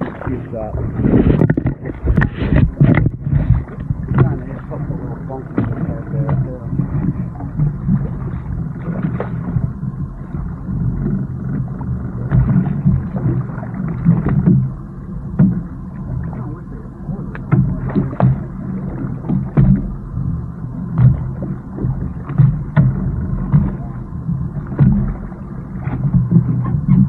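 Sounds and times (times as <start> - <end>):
low steady rumble: 0.0 - 27.0
water splashing at hull: 0.0 - 27.0.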